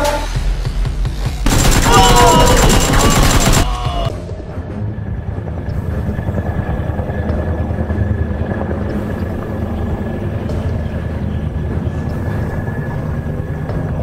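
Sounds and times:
helicopter rotor and engine: 0:05.0 - 0:14.0.

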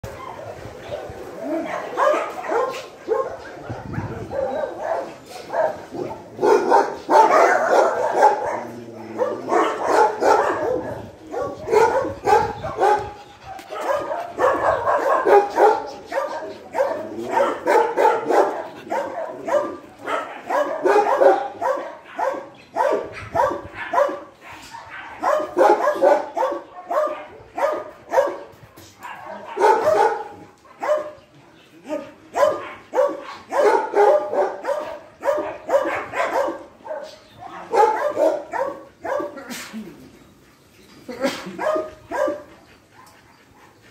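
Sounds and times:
dogs barking: 0:00.1 - 0:31.2, 0:31.8 - 0:39.7, 0:41.2 - 0:43.9.

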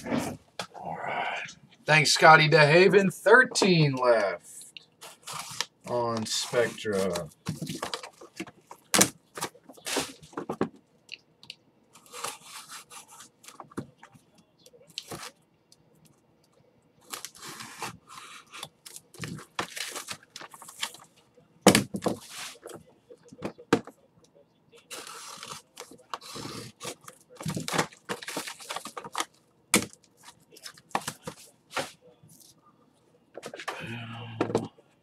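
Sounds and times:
plastic and foil wrappers tearing: 0:17.0 - 0:21.1, 0:24.9 - 0:31.4.

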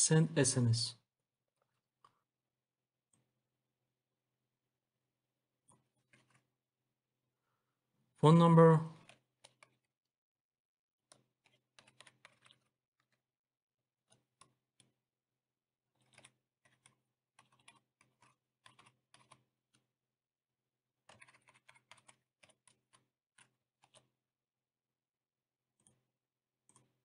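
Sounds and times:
computer keyboard typing: 0:11.1 - 0:13.2, 0:16.0 - 0:19.5, 0:21.1 - 0:24.1.

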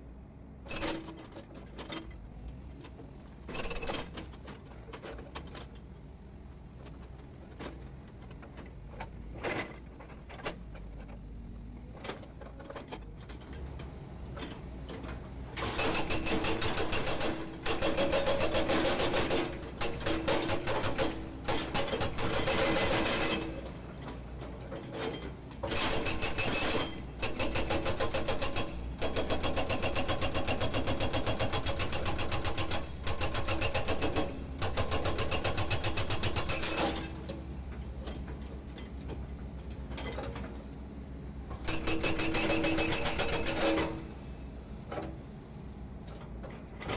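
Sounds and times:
excavator engine hum: 0:00.0 - 0:46.9
hydraulic breaker hammering concrete: 0:15.6 - 0:23.6, 0:25.7 - 0:37.2, 0:41.6 - 0:44.1.

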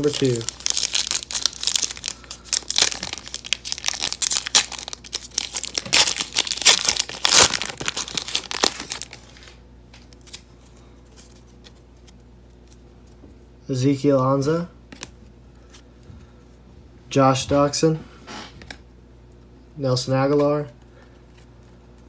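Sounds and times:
foil wrapper crinkling and tearing: 0:00.0 - 0:10.5.

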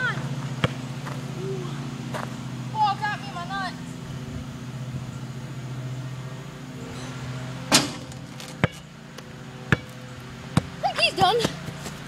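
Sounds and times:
basketball bouncing on pavement: 0:00.0 - 0:01.2, 0:08.6 - 0:12.0
basketball hitting the hoop: 0:07.7 - 0:08.8, 0:09.7 - 0:10.0.

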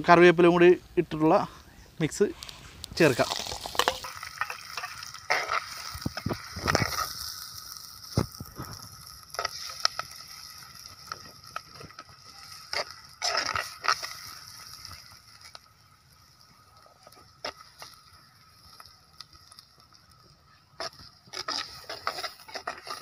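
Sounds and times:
onions sizzling in hot oil: 0:02.1 - 0:23.0.

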